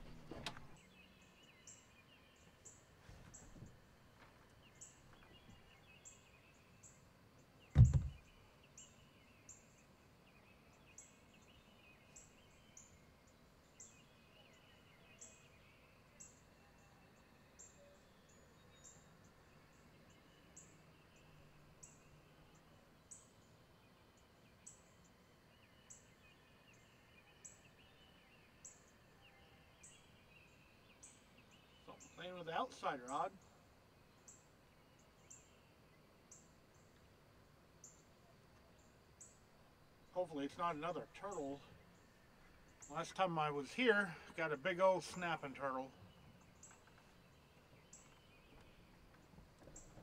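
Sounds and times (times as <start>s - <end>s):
faint lower chirping calls: 0.0s - 3.9s, 4.5s - 50.0s
loud thump: 7.8s - 8.2s.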